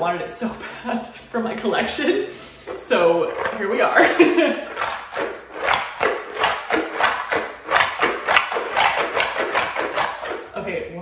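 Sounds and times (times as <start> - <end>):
stress ball squishing: 2.3 - 10.6.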